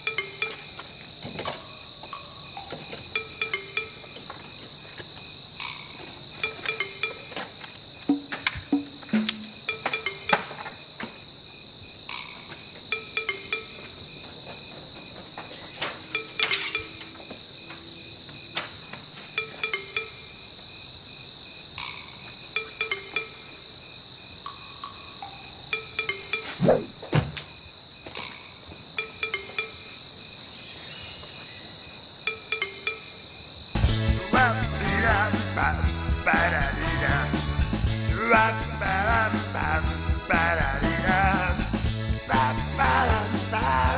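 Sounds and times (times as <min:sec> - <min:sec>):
music: 0:00.0 - 0:00.9, 0:01.7 - 0:04.4, 0:05.6 - 0:07.4, 0:08.1 - 0:10.8, 0:12.9 - 0:14.0, 0:21.8 - 0:23.5, 0:33.8 - 0:43.9
crickets chirping: 0:00.0 - 0:43.9.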